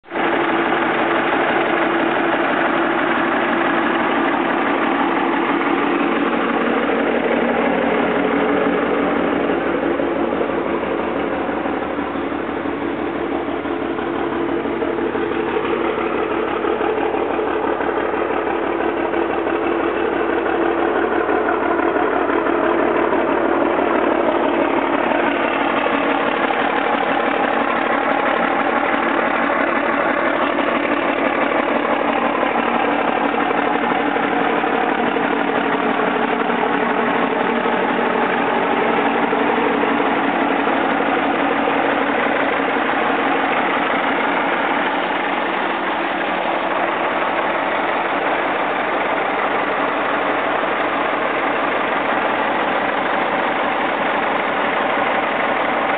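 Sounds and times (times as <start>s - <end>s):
diesel truck engine idling: 0.0s - 55.9s.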